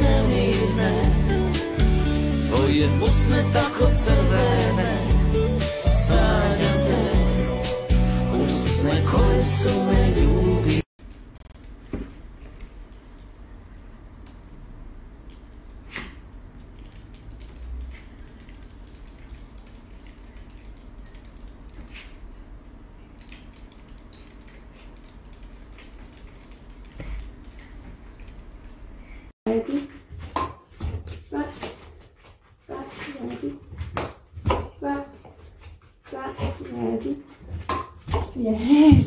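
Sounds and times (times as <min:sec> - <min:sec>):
dog claws clicking on tiles: 0:15.2 - 0:28.8.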